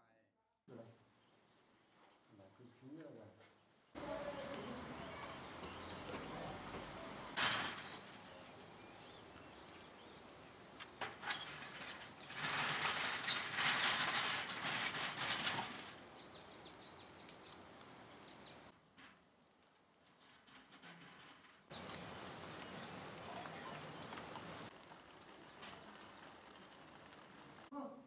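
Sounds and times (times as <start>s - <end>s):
small birds chirping: 0.7s - 18.7s, 21.7s - 28.0s
outdoor hiss: 0.7s - 19.1s, 21.7s - 28.0s
loud rustling: 6.6s - 8.8s, 10.4s - 16.4s.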